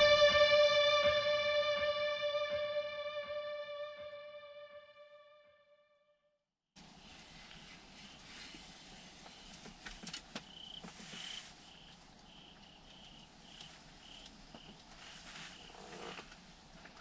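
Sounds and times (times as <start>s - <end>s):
rustle: 6.8s - 17.0s
insect chirping: 9.0s - 17.0s.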